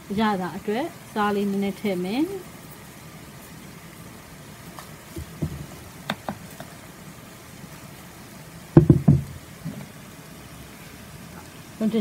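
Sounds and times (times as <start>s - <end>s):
ceramic bowl knocking on table: 8.8s - 9.3s.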